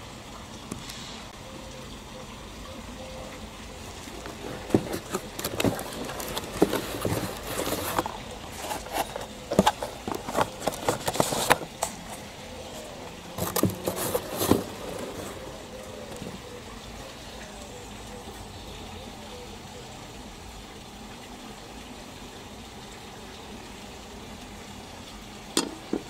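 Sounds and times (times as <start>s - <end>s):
hands rummaging through cardboard: 3.9s - 16.4s.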